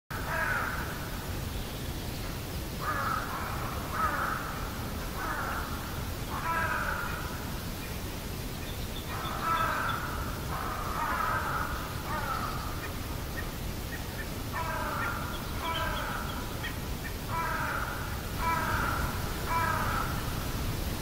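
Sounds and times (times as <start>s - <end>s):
crows cawing: 0.2s - 1.1s, 2.8s - 7.4s, 9.1s - 12.9s, 14.5s - 16.5s, 17.2s - 20.6s.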